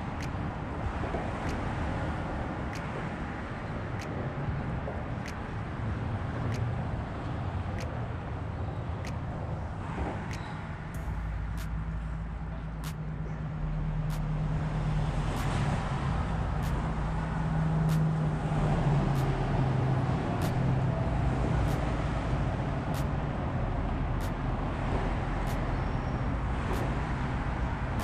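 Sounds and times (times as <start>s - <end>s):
engine hum: 0.0s - 28.0s
faint sharp ticks: 1.4s - 1.8s, 5.2s - 5.6s, 14.1s - 14.3s, 15.3s - 15.6s, 17.8s - 18.2s, 19.1s - 19.4s, 20.4s - 20.7s, 21.6s - 22.0s, 22.9s - 23.2s, 24.2s - 24.5s, 25.4s - 25.8s, 26.7s - 27.0s.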